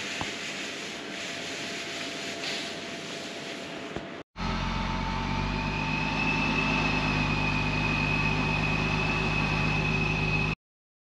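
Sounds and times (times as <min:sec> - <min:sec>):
supercharger whine: 0:04.4 - 0:10.6.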